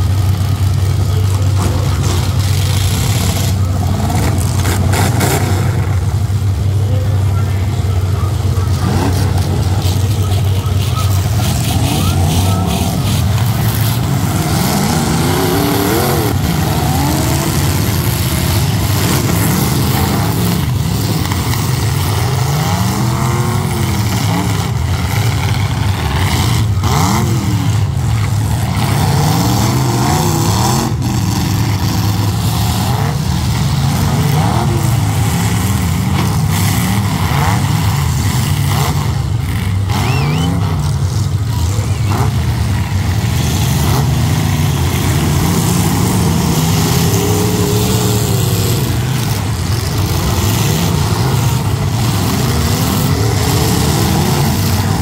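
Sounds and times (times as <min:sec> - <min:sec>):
truck engines revving: 0:00.0 - 0:55.0.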